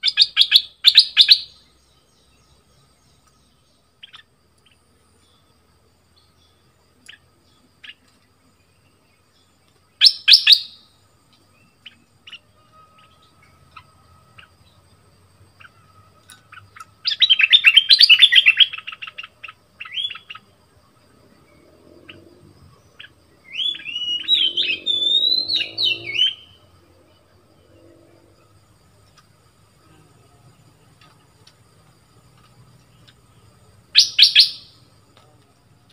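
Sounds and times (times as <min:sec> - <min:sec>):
bird calling and warbling: 0:00.0 - 0:01.6, 0:10.0 - 0:10.8, 0:15.6 - 0:20.5, 0:22.0 - 0:26.6, 0:33.9 - 0:34.8.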